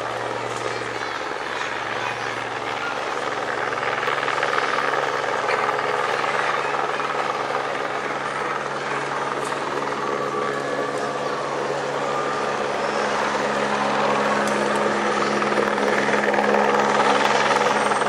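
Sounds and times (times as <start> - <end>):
helicopter flying by: 0.0 - 18.0.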